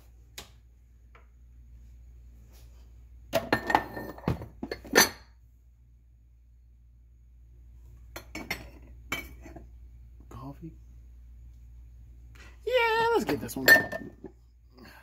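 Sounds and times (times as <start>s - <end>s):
cups clinking together: 8.2s - 9.6s, 13.6s - 14.3s.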